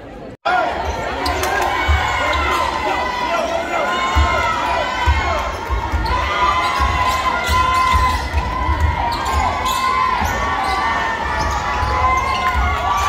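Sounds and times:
sneaker squeaks: 5.3 - 13.0.

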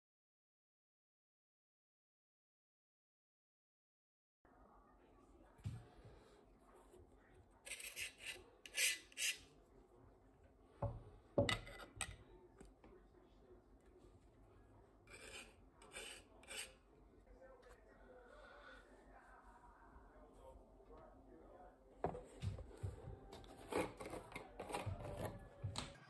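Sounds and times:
knife scraping wax off metal: 7.6 - 9.5, 15.1 - 16.8, 23.5 - 25.3.

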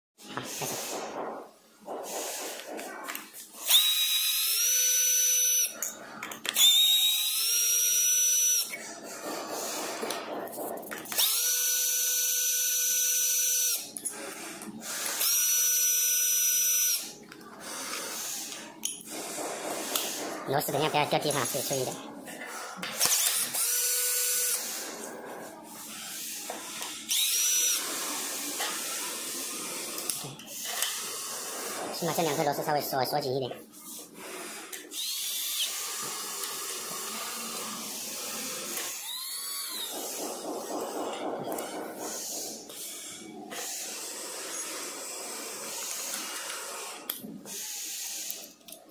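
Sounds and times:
electric drill whining: 3.4 - 5.8, 6.4 - 8.8, 11.0 - 14.1, 15.0 - 17.2, 23.0 - 25.0, 26.4 - 32.4, 34.7 - 48.7
electric screwdriver running: 3.6 - 5.7, 6.5 - 8.8, 11.0 - 13.9, 15.0 - 17.1, 23.0 - 24.7, 26.8 - 32.7, 34.9 - 42.8.

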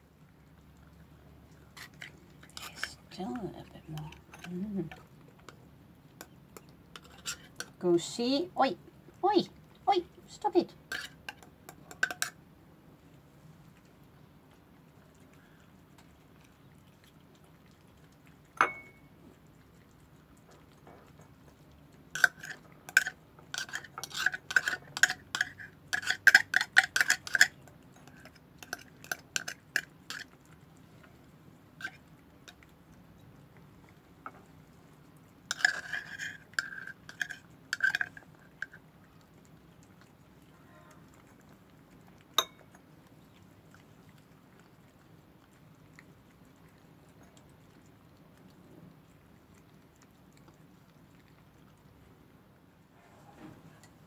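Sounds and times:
cats eating from bowls: 0.0 - 54.0
bowls clinking: 10.9 - 12.4, 18.6 - 19.1, 42.4 - 42.8.

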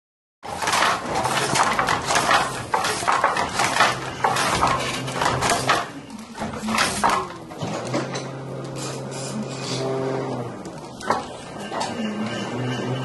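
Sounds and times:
wooden loom beater knocking: 0.4 - 8.1, 10.7 - 13.0.

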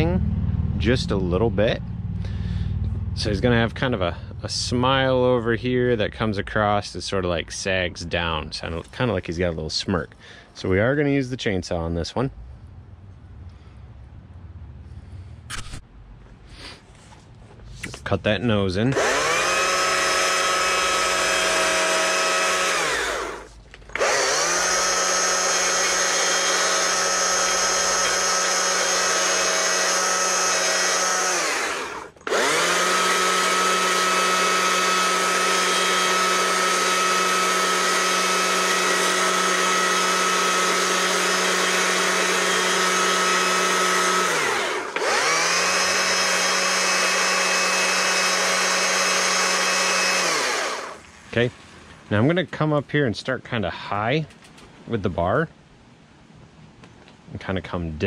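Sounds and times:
chainsaw cutting wood: 18.9 - 51.1.

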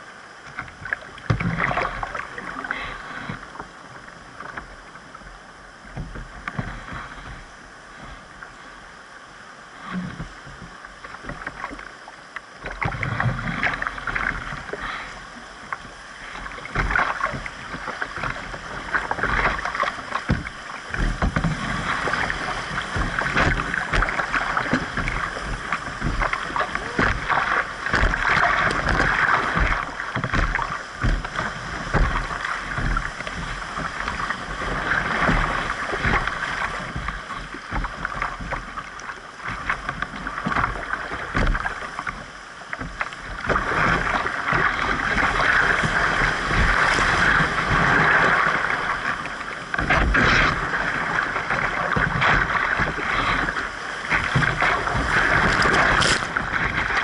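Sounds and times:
paddle strokes: 0.0 - 57.0
knocks against canoe hull: 0.5 - 1.9, 16.7 - 48.4
whitewater rushing: 12.7 - 41.9, 43.2 - 57.0.

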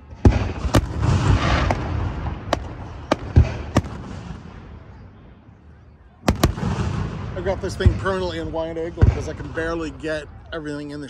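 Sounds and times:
fireworks crackling: 0.0 - 4.8, 6.2 - 10.1
fireworks bangs: 0.0 - 5.3, 6.2 - 10.4.

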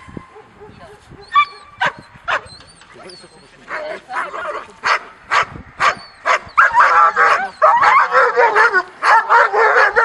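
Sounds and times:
dog barking: 3.7 - 10.0.

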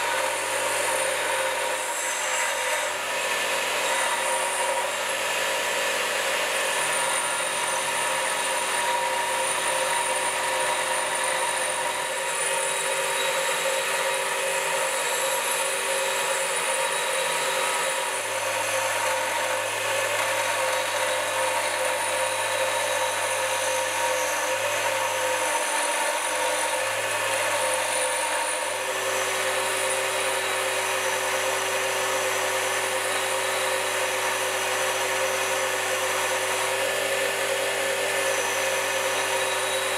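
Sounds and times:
bench grinder motor hum: 0.0 - 39.9
grinding hiss on metal: 0.0 - 39.9.

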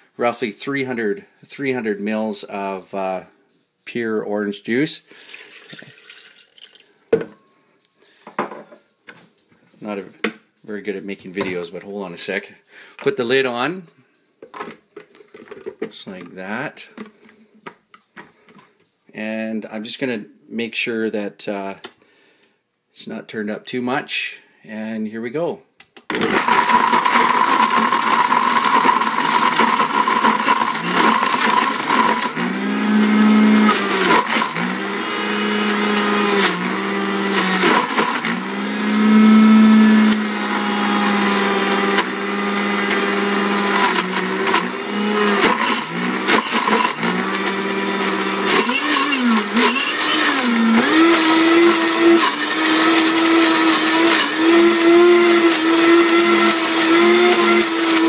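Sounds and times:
blender motor whining: 26.1 - 58.0.

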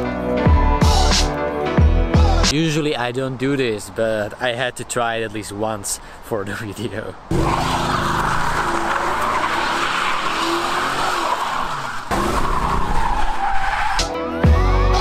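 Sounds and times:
music: 0.0 - 2.6, 14.0 - 15.0
tyres screeching: 7.3 - 14.2.

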